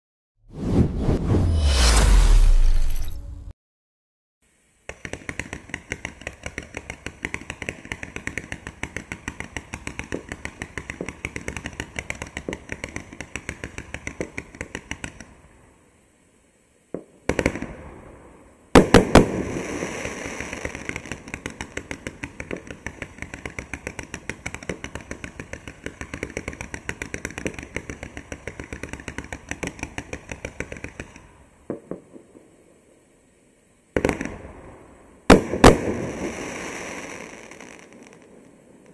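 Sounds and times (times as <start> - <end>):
fireworks cake rapid pops: 4.8 - 15.4, 18.8 - 32.4, 35.3 - 38.9
loud fireworks bangs: 18.8 - 32.2, 35.3 - 38.3.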